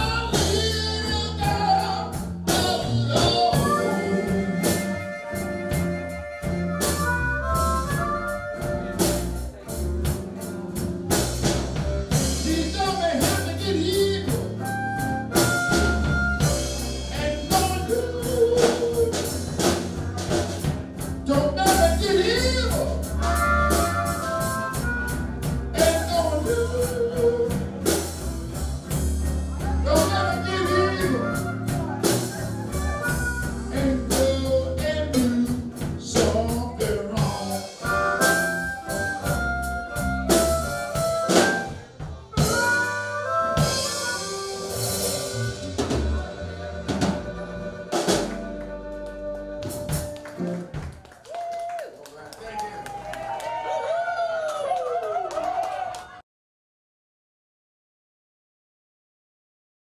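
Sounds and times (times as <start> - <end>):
man singing: 0.0 - 6.4, 12.1 - 20.0, 21.2 - 24.9, 25.7 - 28.2, 29.2 - 38.6
electric guitar: 0.0 - 50.9
drums: 0.0 - 51.8.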